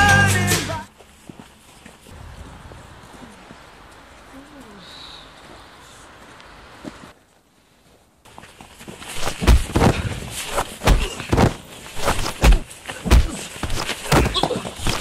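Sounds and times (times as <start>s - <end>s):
heavy thuds and scuffs of fighting: 8.9s - 15.0s.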